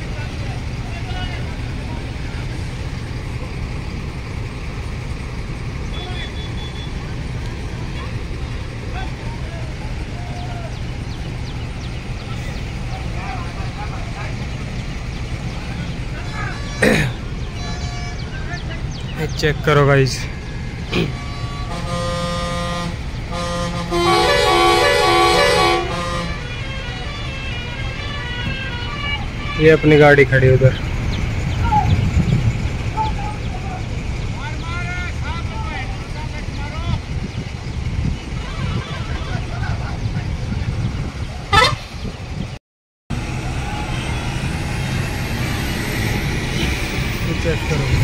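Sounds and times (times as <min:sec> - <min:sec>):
low traffic rumble: 0:00.0 - 0:48.0
held horn tone: 0:16.2 - 0:18.7, 0:20.8 - 0:30.8, 0:41.5 - 0:42.1
musical horn playing stepped notes: 0:21.1 - 0:29.6.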